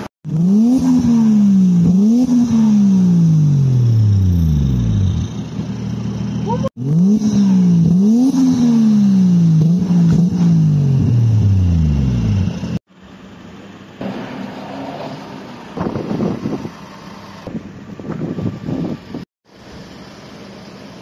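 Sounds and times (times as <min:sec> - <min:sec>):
car engine revving: 0:00.0 - 0:12.8.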